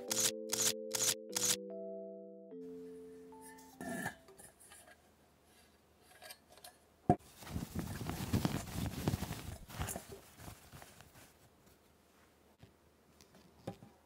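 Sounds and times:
sharp click: 0:00.1 - 0:01.6
quick tapping and rustling: 0:07.2 - 0:11.3.

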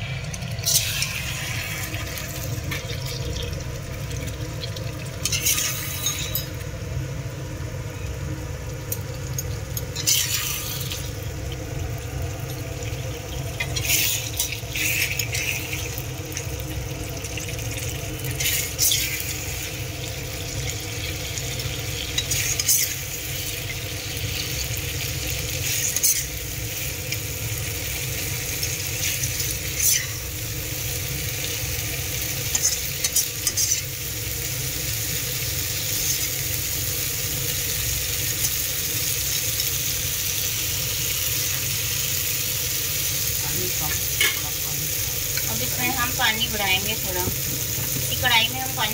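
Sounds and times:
food sizzling in a pan: 0:00.0 - 0:48.9
metal spatula scraping: 0:05.2 - 0:06.5, 0:10.0 - 0:10.8, 0:13.6 - 0:15.8, 0:18.4 - 0:19.3, 0:29.7 - 0:30.2, 0:32.5 - 0:33.9.

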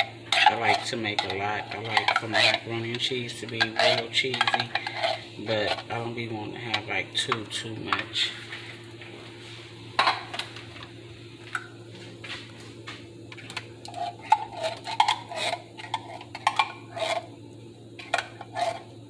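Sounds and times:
spoon scraping and knocking: 0:00.3 - 0:05.9, 0:13.9 - 0:17.3.

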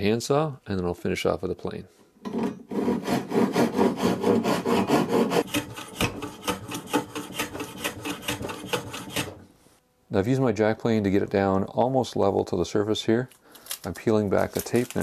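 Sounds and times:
hand plane shaving wood: 0:02.7 - 0:09.4
handsaw cutting wood: 0:02.7 - 0:09.4.

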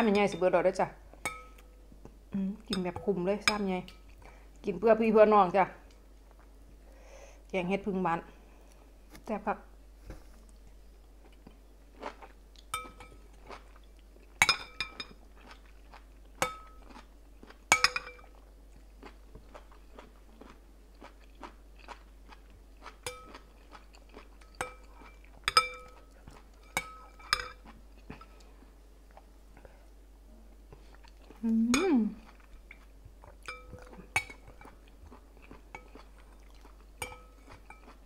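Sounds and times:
close chewing of food: 0:10.5 - 0:29.3, 0:30.8 - 0:31.5, 0:32.1 - 0:38.0
metal spoon clinking on glass bowl: 0:17.7 - 0:18.2, 0:23.0 - 0:23.3, 0:25.5 - 0:26.0, 0:26.6 - 0:27.6, 0:33.5 - 0:34.7, 0:37.0 - 0:38.0.

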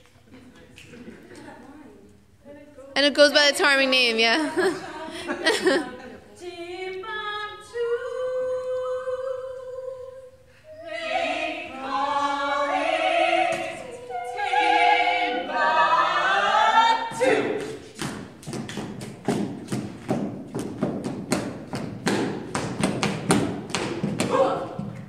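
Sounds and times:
person singing with vibrato: 0:04.4 - 0:17.8.

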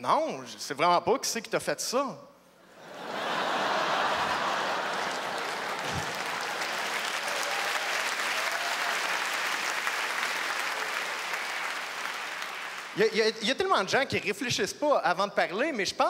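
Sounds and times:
audience laughing: 0:02.7 - 0:07.1
audience applauding: 0:03.1 - 0:13.2.

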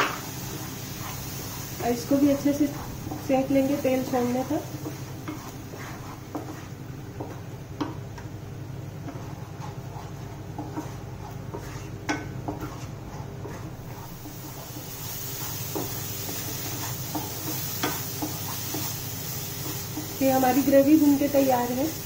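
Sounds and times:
wooden spatula scraping a pan: 0:00.0 - 0:08.0, 0:08.9 - 0:22.0.

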